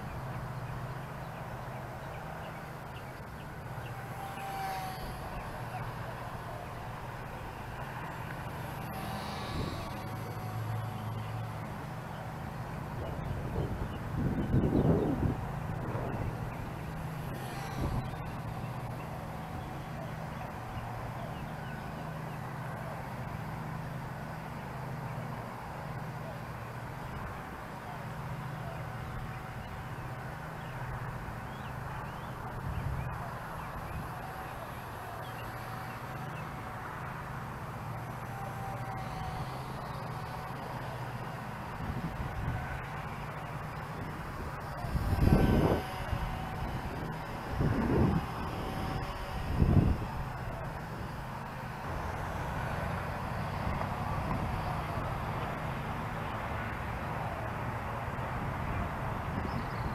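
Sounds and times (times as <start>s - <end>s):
wind buffeting microphone: 12.9s - 18.9s, 44.2s - 50.6s.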